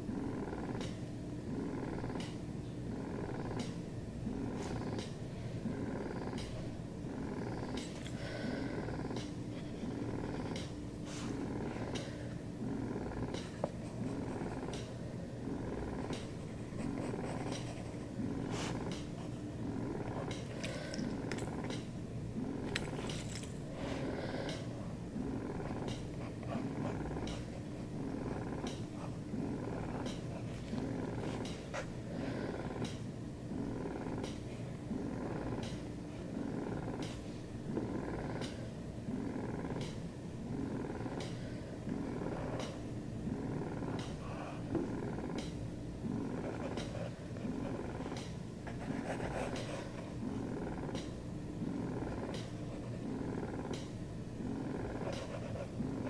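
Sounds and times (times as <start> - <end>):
cat purring: 0.0 - 56.0
pen scratching on paper: 16.4 - 18.9, 48.7 - 50.0, 55.0 - 56.0.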